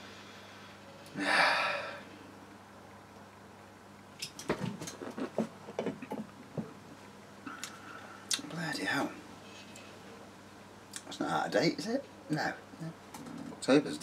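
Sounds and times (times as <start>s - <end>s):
person exhaling sharply: 0.1s - 2.1s.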